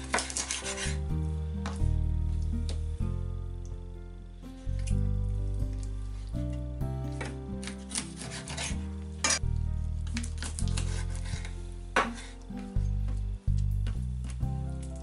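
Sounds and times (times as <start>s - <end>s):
background music with bass line: 0.7s - 7.7s, 8.3s - 15.0s
knife chopping on cutting board: 7.2s - 9.4s, 10.6s - 12.3s.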